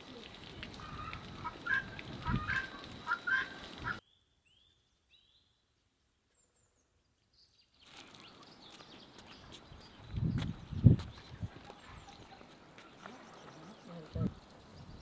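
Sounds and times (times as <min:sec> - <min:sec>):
quiet outdoor ambience: 0:00.0 - 0:15.0
poultry calling: 0:00.8 - 0:04.0.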